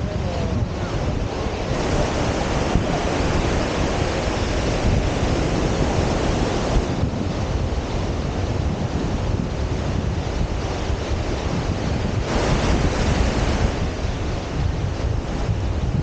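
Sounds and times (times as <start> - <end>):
surf breaking on beach: 0.0 - 16.0
wind on microphone: 0.0 - 16.0.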